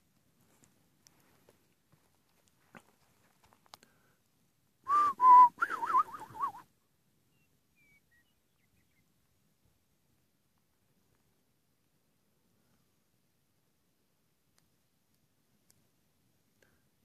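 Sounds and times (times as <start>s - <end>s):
faint clicks: 2.2s - 4.0s, 14.5s - 15.9s
person whistling: 4.9s - 6.6s.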